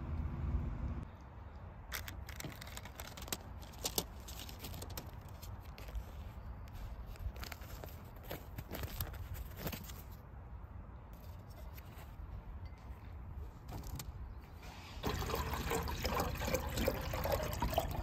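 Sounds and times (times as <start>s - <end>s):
paper wrapper tearing and crackling: 1.9s - 6.0s.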